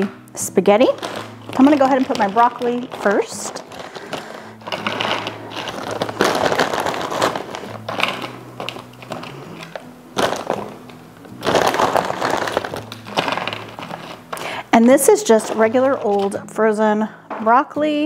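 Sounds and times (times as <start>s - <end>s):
frozen vegetables rattling into tubs: 0.0s - 16.5s
quiet background music: 0.0s - 18.0s.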